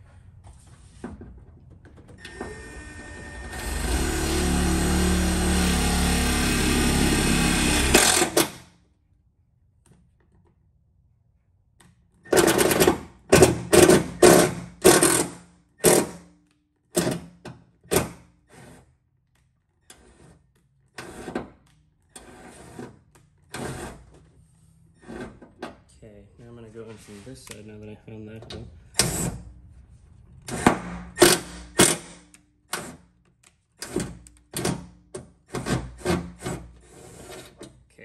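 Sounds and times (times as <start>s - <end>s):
power drill drilling sheet metal: 2.4s - 8.6s, 30.6s - 32.2s.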